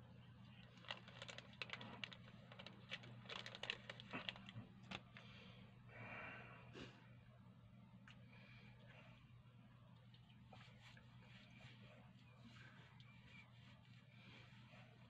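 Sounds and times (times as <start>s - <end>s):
plastic wrapper crinkling: 0.6s - 5.2s
tissue paper rustling: 0.7s - 5.0s.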